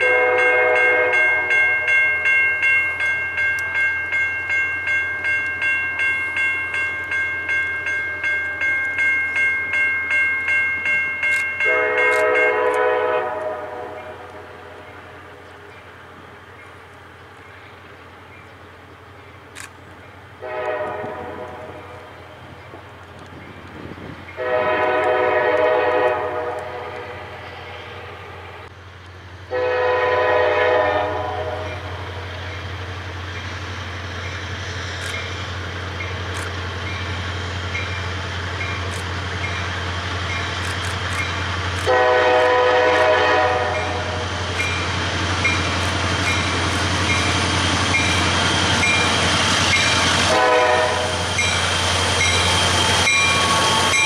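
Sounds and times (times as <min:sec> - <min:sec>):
locomotive air horn blasts: 0:00.0 - 0:02.0, 0:11.6 - 0:14.8, 0:20.4 - 0:22.0, 0:24.4 - 0:28.2, 0:29.5 - 0:31.9, 0:41.8 - 0:44.4, 0:50.2 - 0:51.3.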